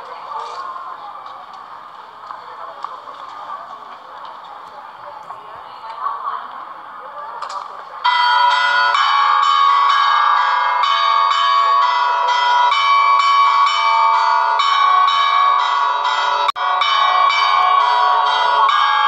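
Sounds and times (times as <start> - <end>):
church bells ringing: 8.0 - 19.0.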